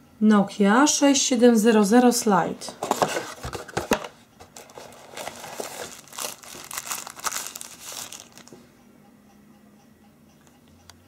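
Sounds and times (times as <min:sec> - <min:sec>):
packaging crinkling: 0:02.8 - 0:08.6.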